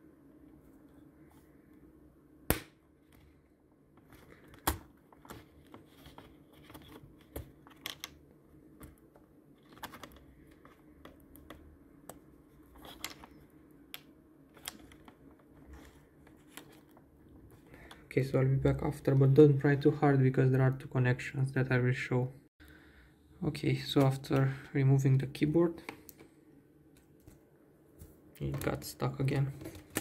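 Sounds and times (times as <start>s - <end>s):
small clicks and scrapes: 8.8s - 13.5s, 14.5s - 18.0s.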